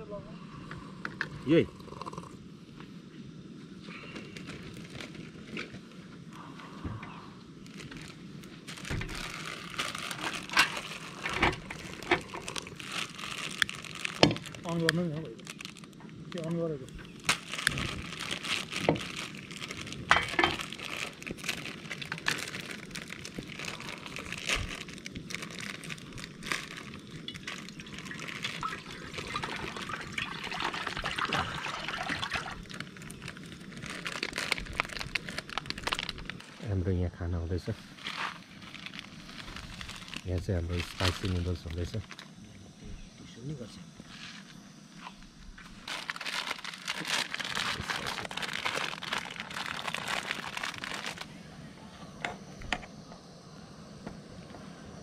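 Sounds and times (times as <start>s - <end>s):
crinkling and rustling: 4.0s - 6.5s, 7.6s - 36.8s, 37.6s - 42.4s, 44.0s - 51.3s
water pouring into pot: 27.3s - 33.3s.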